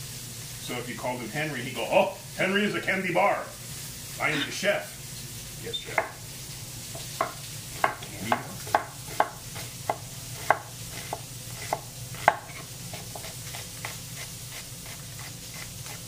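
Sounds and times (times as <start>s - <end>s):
frying pan sizzling: 0.0s - 16.0s
knife chopping on wooden board: 5.9s - 6.2s, 7.0s - 15.3s.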